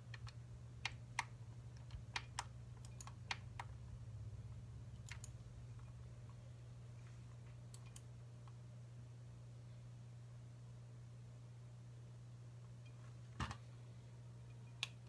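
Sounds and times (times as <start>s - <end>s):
keys and buttons clicking: 0.0s - 3.9s, 4.9s - 6.4s, 7.6s - 8.1s
low electrical hum: 0.0s - 15.0s.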